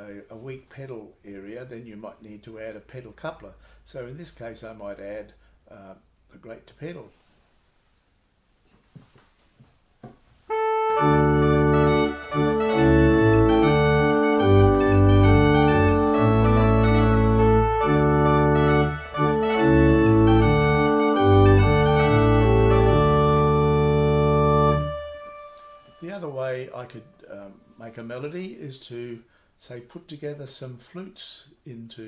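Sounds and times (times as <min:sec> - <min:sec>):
organ playing: 0:10.5 - 0:27.8.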